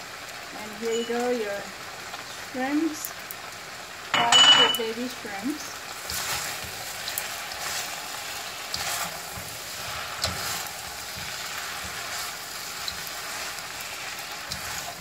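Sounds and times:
noodles sizzling in wok: 0:00.0 - 0:15.0
utensils clacking and scraping pan: 0:06.0 - 0:15.0.

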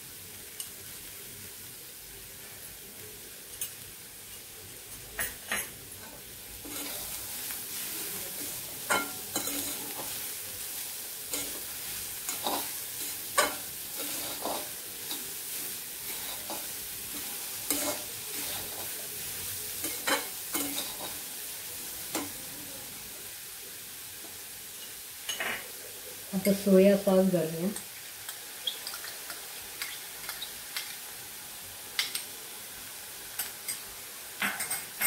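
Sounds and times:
vegetables sizzling in a pan: 0:00.0 - 0:35.0
metal spatula scraping a pan: 0:05.2 - 0:10.4, 0:11.2 - 0:19.0, 0:19.8 - 0:21.3.

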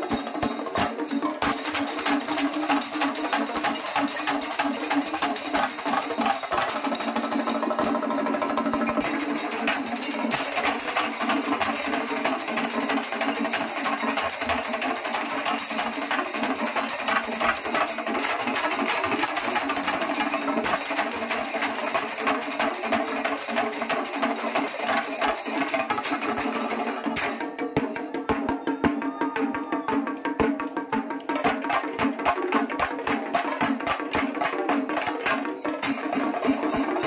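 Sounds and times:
cymbals: 0:00.0 - 0:37.0
drums playing fast rhythm: 0:00.0 - 0:37.0.

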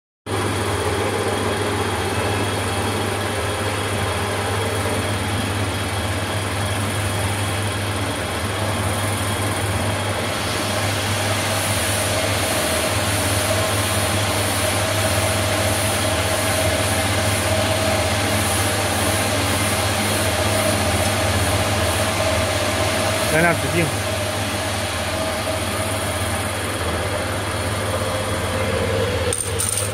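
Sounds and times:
bending machine running: 0:08.4 - 0:29.9.

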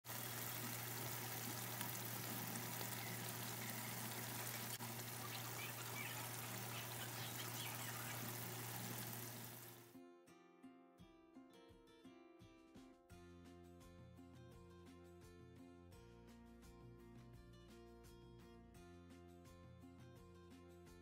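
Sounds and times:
gravy sizzling in a wok: 0:00.0 - 0:09.9.

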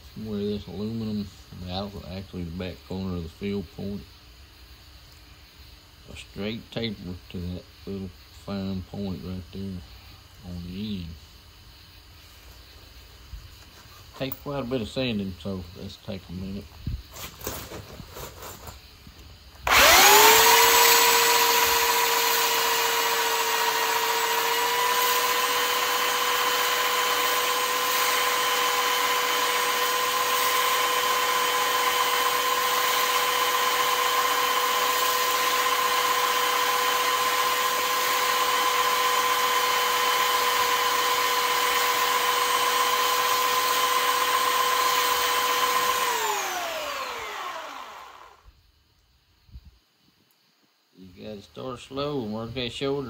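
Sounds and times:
belt sander whining: 0:19.6 - 0:48.4
belt sander winding down: 0:19.6 - 0:48.4.

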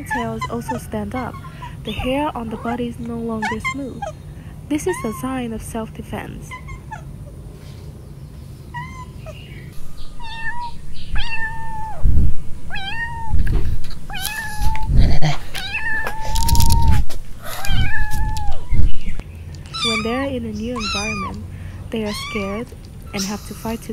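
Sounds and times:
kittens meowing: 0:00.0 - 0:05.5, 0:06.4 - 0:07.3, 0:08.7 - 0:23.9
low thumps: 0:09.8 - 0:14.1.

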